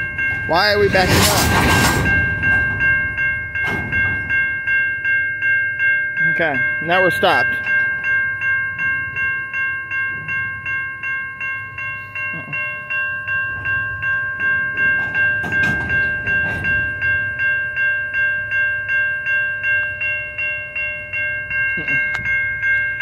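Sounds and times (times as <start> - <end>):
electronic crossing bell ringing: 0.0 - 23.0
low rumble with knocks: 0.1 - 4.8, 14.4 - 17.3.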